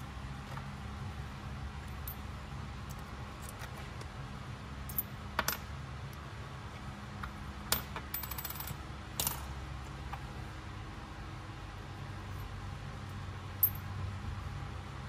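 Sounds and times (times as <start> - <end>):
coins clinking: 8.1 - 9.4, 13.6 - 13.8
high ring of coins: 8.1 - 9.5, 13.6 - 13.9.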